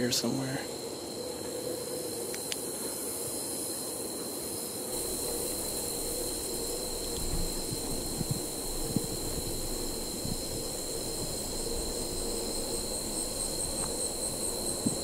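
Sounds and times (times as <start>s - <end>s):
constant high-pitched note: 0.0s - 15.0s
crickets trilling: 0.0s - 15.0s
even hiss: 0.0s - 15.0s
soft low thumps: 5.0s - 15.0s.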